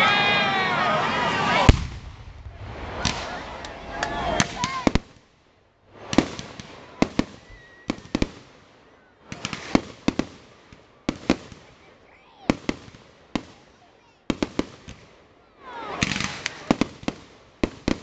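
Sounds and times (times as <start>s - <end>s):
fireworks bursting: 1.0s - 11.9s, 15.8s - 18.0s.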